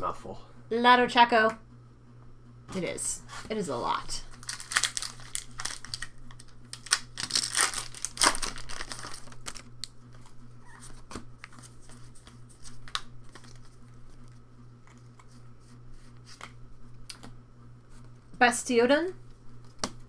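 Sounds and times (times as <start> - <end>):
cards rustling: 3.8 - 16.6
foil wrapper tearing and crinkling: 4.2 - 10.4.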